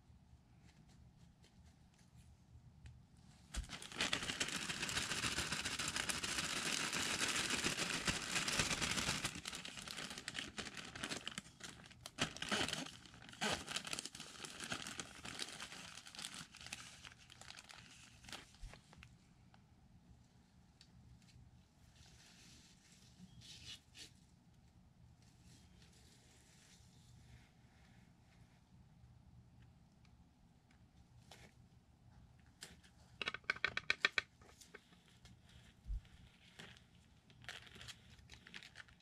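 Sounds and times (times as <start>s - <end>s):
crinkling and rustling: 3.4s - 19.2s, 32.4s - 39.0s.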